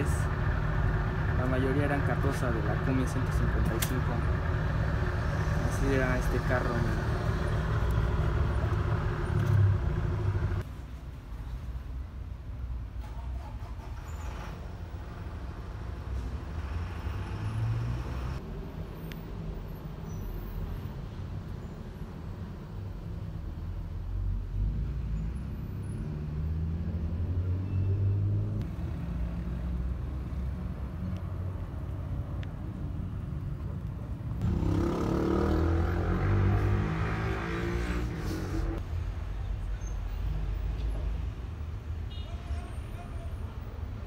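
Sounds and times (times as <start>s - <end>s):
bus engine running: 0.0s - 10.6s.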